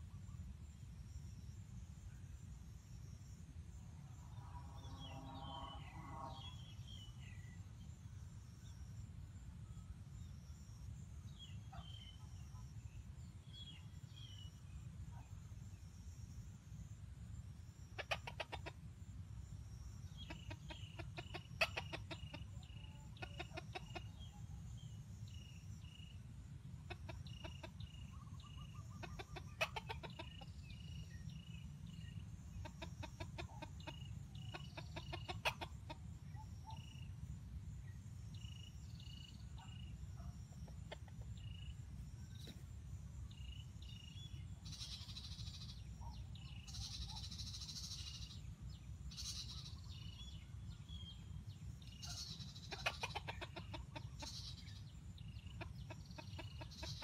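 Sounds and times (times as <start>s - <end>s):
roosters clucking: 17.9s - 18.9s, 20.1s - 24.4s, 26.8s - 37.0s, 40.2s - 48.4s, 51.2s - 57.0s.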